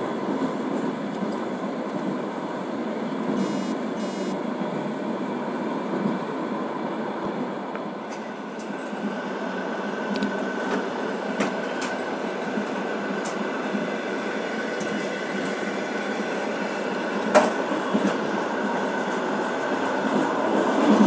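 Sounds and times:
train wheels on track: 0.0 - 21.0
faint steady whine: 3.4 - 4.4.

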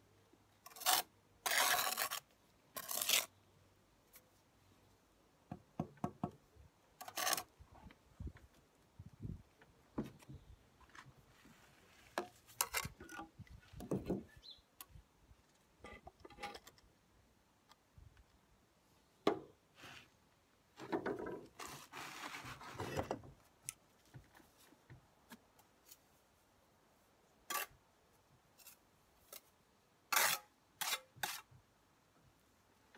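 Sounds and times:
knocks and scrapes on bricks: 12.0 - 14.4, 20.8 - 23.4.

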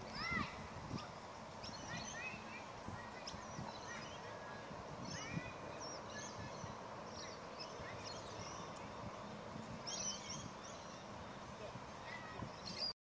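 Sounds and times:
birds chirping and whistling: 0.1 - 13.0.

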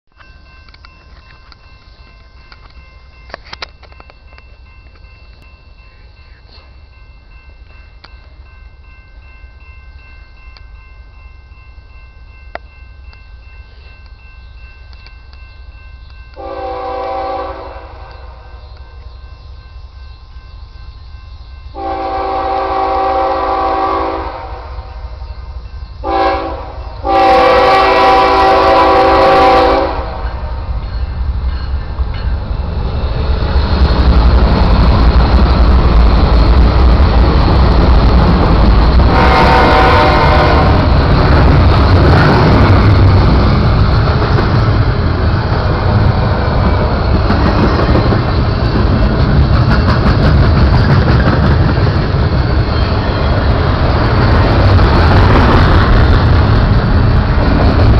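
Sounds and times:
diesel locomotive rumble: 0.2 - 57.9
locomotive air horn: 16.4 - 18.2, 21.8 - 25.0, 26.0 - 30.4, 39.1 - 41.0
train wheels clacking on rails: 25.8 - 57.9.

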